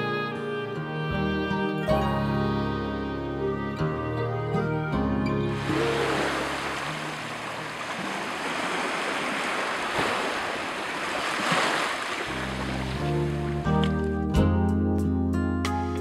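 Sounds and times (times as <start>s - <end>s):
background music: 0.0s - 7.4s, 12.4s - 16.0s
waves washing onto sandy beach: 5.6s - 13.5s.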